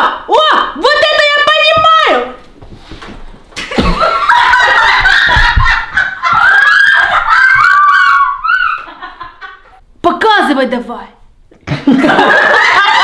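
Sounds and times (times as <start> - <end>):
dull thumps: 1.7 - 7.8
people laughing loudly: 3.6 - 9.8, 11.6 - 13.0.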